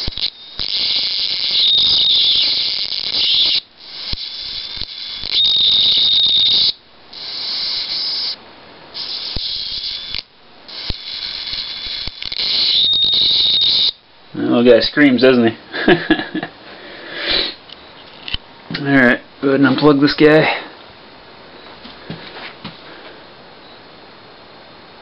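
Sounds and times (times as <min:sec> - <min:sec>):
sharp clicks: 0:00.0 - 0:06.7, 0:09.1 - 0:13.7
high-voltage arc hissing scream: 0:00.0 - 0:14.0.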